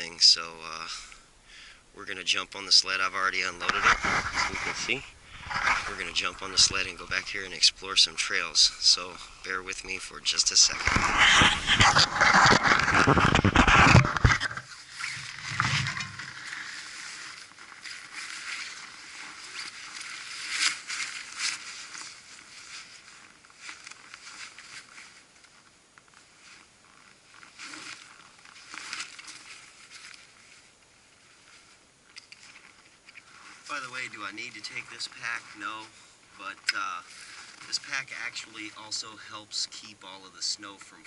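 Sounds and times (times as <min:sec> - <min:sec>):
crunching on packed snow: 0:02.6 - 0:25.6, 0:26.2 - 0:31.8, 0:32.4 - 0:39.8
hand rubbing on camera: 0:03.4 - 0:17.4.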